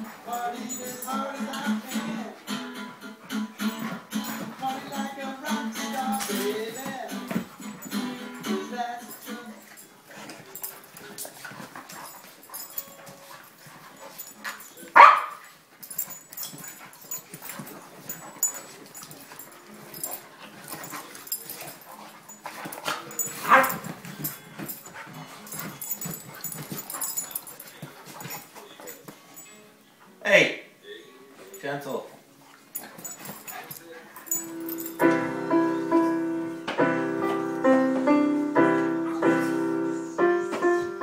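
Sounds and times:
paws scrabbling on leather: 0:09.7 - 0:29.5
dog barking: 0:15.0 - 0:15.4, 0:23.4 - 0:23.8.

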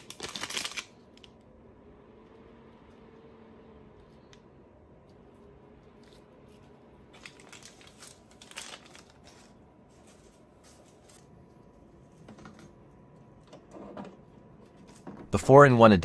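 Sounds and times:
plastic bag crinkling: 0:00.0 - 0:01.3, 0:07.0 - 0:11.6
soft handling noises: 0:03.9 - 0:13.7.

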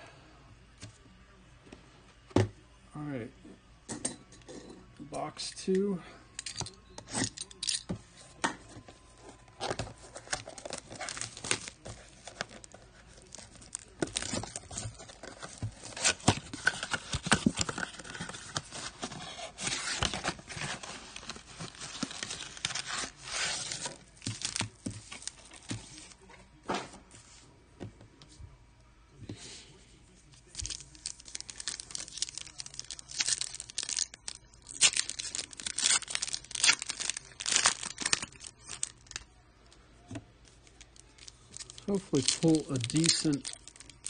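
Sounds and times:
cardboard and wrapping tearing: 0:09.6 - 0:26.1, 0:30.5 - 0:39.2, 0:41.2 - 0:44.0.

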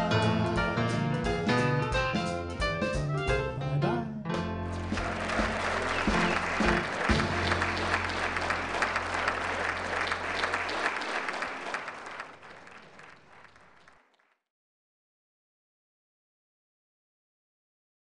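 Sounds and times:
band holding low notes: 0:00.0 - 0:10.6
audience applauding: 0:04.8 - 0:14.4.

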